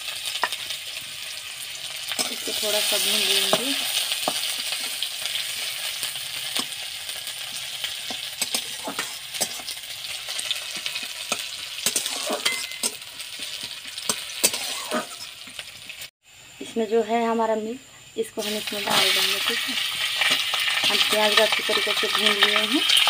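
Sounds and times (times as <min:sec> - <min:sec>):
onions sizzling in hot oil: 0:00.0 - 0:16.1, 0:18.4 - 0:23.0
metal spatula scraping pan: 0:08.1 - 0:09.8, 0:10.4 - 0:15.3.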